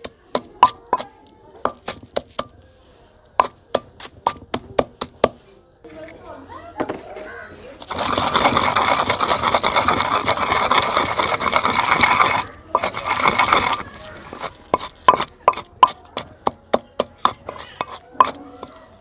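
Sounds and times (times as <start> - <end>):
pestle grinding in stone mortar: 0.0 - 2.6, 3.3 - 5.5, 7.8 - 19.0
pestle pounding paste: 0.0 - 2.6, 3.4 - 5.4, 7.8 - 18.9.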